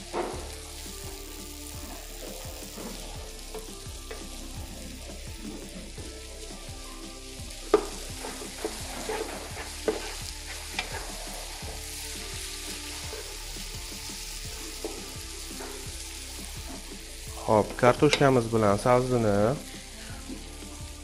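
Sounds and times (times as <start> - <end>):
vegetables sizzling in butter: 0.0 - 21.0
wooden spoon scraping pot: 7.7 - 11.9.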